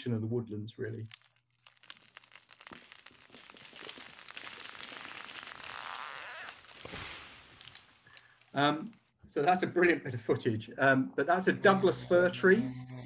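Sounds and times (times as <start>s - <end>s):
tree cracking and splintering: 1.0s - 9.1s
tree crashing through branches: 1.1s - 8.7s.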